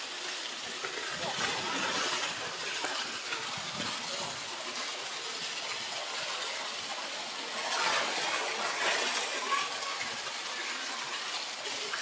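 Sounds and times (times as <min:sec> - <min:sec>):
waterfall rushing into a pool: 0:00.0 - 0:12.0
animals splashing in water: 0:06.3 - 0:10.7.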